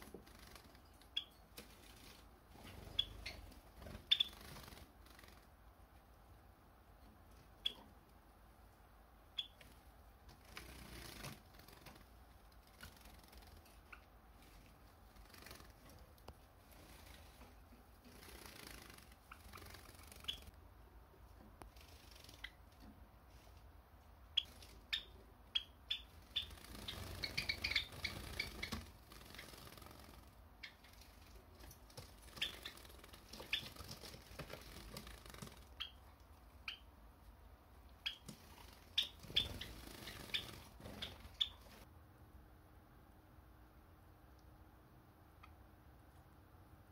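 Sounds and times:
sparrows chirping: 0.0 - 5.3, 9.3 - 9.7, 18.2 - 20.5, 24.3 - 34.0, 35.6 - 36.9, 38.0 - 41.9.

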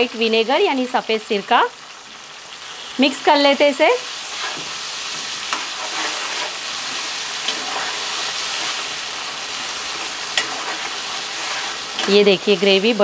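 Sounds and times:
vegetables sizzling in oil: 0.0 - 13.0
ladle stirring in pan: 4.0 - 13.0.

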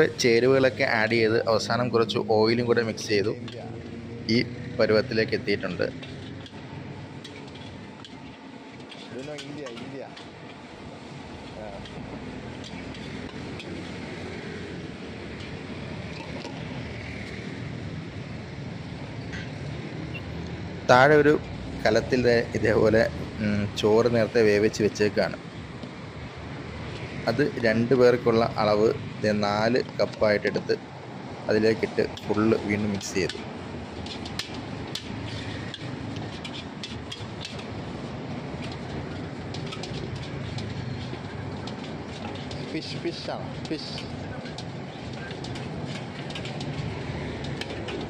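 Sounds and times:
gas burner roaring: 0.0 - 48.0
metal ladle scraping a wok: 35.2 - 37.6.

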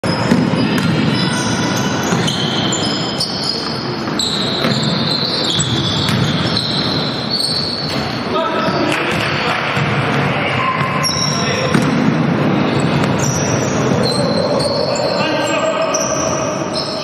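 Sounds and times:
shoes squeaking: 0.0 - 8.9
basketball bouncing: 0.1 - 1.3, 4.0 - 7.0, 11.6 - 13.4.

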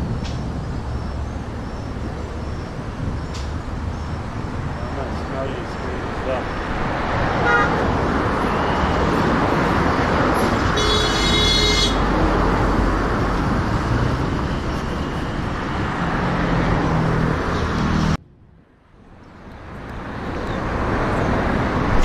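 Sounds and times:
road traffic noise: 0.0 - 22.0
vehicle horn: 7.4 - 7.8, 10.7 - 12.1.

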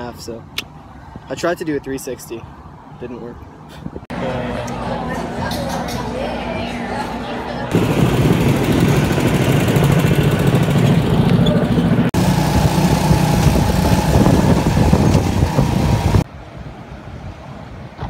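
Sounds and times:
outdoor background: 0.0 - 18.0
go-kart engine running: 7.7 - 16.2.

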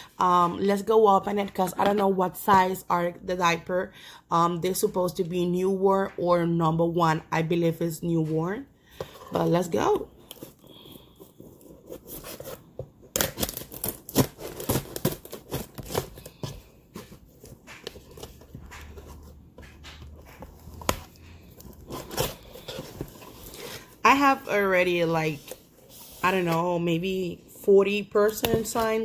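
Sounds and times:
scissors cutting cardboard: 11.4 - 23.9.

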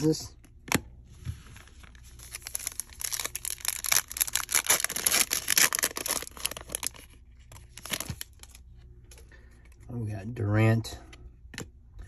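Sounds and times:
foil wrapper tearing and crinkling: 2.2 - 7.1.

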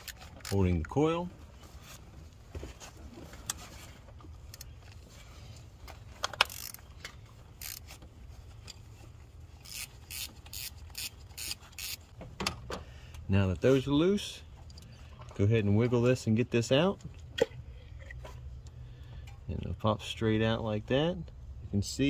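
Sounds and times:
hand ratchet clicking: 6.2 - 6.8, 7.6 - 8.0, 9.6 - 12.1.

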